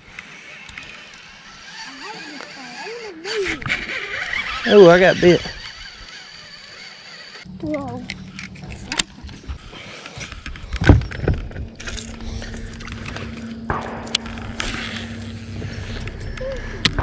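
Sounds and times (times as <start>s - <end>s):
steady low hum: 0.0s - 17.0s
fishing reel clicks: 0.1s - 9.1s.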